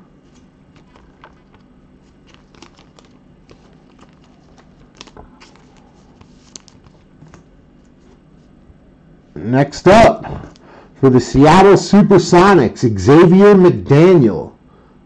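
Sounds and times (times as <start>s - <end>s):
plastic card sleeve clicks and rustles: 0.3s - 7.5s.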